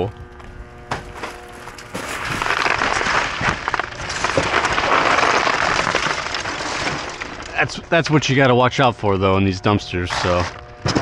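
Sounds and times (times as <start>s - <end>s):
plastic bags crinkling: 0.9s - 7.9s.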